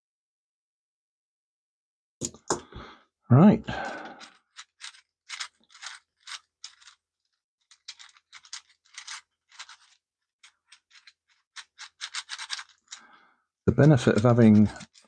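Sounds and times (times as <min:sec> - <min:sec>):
plastic cube twisting scrapes and clicks: 0:03.8 - 0:15.0.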